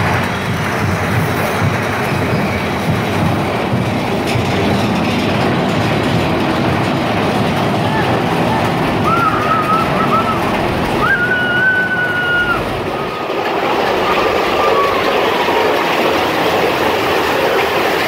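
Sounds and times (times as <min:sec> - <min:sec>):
roller coaster rumbling and rattling: 0:00.0 - 0:18.0
high squeals: 0:09.0 - 0:15.5
falling water hiss: 0:09.5 - 0:18.0.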